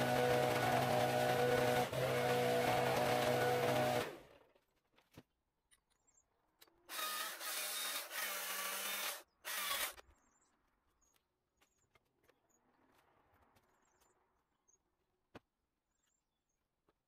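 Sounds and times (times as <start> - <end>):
battery chainsaw running: 0.0 - 4.2.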